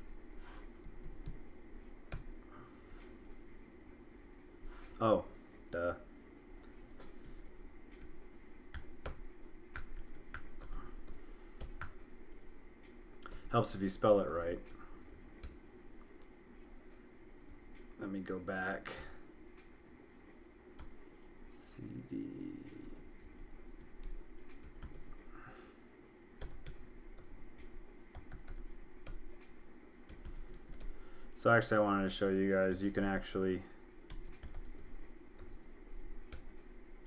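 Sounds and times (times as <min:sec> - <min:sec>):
computer keyboard typing: 0:07.0 - 0:12.6, 0:13.2 - 0:15.6, 0:22.7 - 0:25.3, 0:26.4 - 0:31.0, 0:34.0 - 0:36.7.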